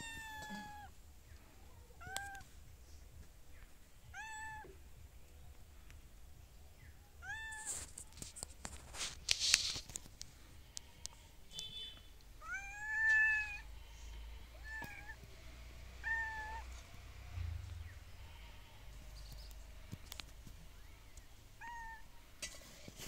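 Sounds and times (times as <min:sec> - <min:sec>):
cat meowing: 0:00.0 - 0:00.9, 0:01.9 - 0:02.5, 0:04.1 - 0:04.8, 0:07.2 - 0:07.8, 0:12.4 - 0:13.7, 0:14.5 - 0:15.2, 0:15.9 - 0:16.8, 0:21.6 - 0:22.1.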